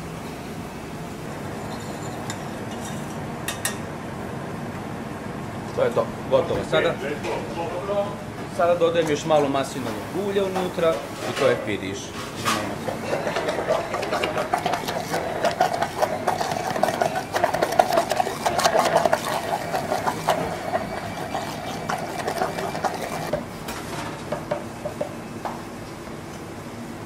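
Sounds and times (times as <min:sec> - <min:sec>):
immersion blender running: 0:13.0 - 0:23.3.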